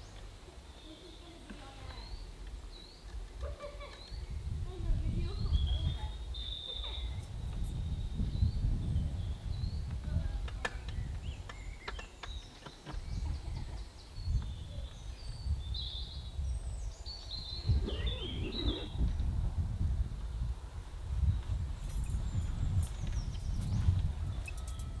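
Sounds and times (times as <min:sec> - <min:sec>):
wind buffeting microphone: 0:04.1 - 0:11.8, 0:13.0 - 0:25.0
birds chirping: 0:11.0 - 0:19.1.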